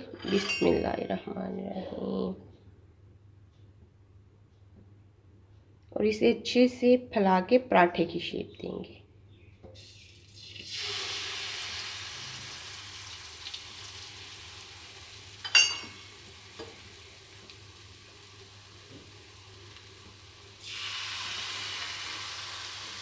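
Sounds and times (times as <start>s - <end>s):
batter sizzling in hot oil: 9.9s - 23.0s
sharp clink: 15.5s - 16.0s.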